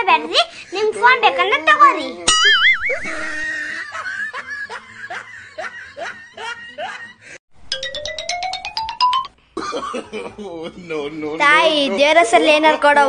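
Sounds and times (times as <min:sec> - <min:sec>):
rising laugh-like sound effects: 0:02.3 - 0:07.1
rising tone with rapid ticking: 0:07.7 - 0:09.3.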